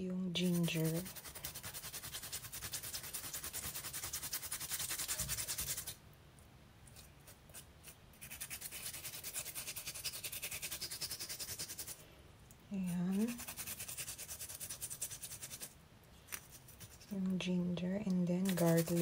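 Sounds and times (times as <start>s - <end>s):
ginger scraping on a grater: 0.4s - 6.0s, 13.1s - 15.7s, 18.4s - 19.0s.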